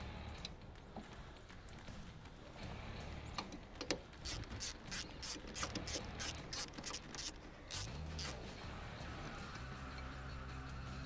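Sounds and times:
socket ratchet clicking: 0:04.2 - 0:08.4.

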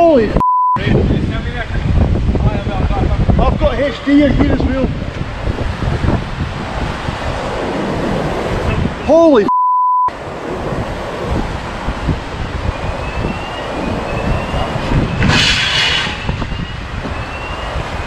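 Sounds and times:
wind buffeting microphone: 0:00.0 - 0:09.4, 0:10.1 - 0:18.0
brief loud hiss: 0:15.2 - 0:16.4.

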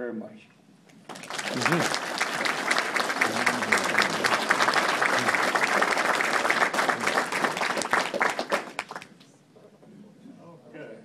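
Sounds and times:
hands clapping close by: 0:00.9 - 0:09.3
audience applauding: 0:01.0 - 0:09.2.

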